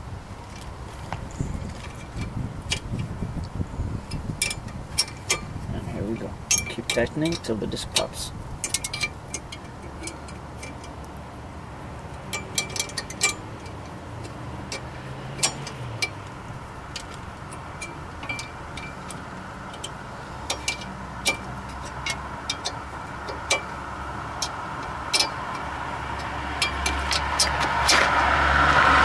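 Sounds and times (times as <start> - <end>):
low steady rumble: 0.0 - 29.0
wrench clicking and clinking: 6.4 - 11.1, 12.1 - 28.2.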